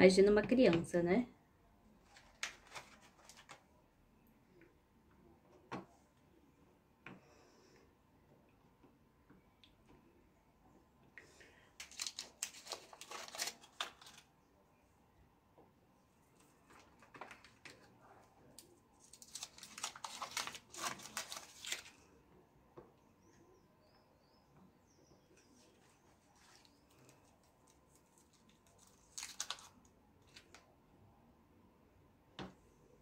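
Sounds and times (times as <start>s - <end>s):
plastic wrappers crinkling: 2.0s - 3.6s, 11.8s - 14.3s, 16.4s - 22.0s, 25.6s - 30.6s.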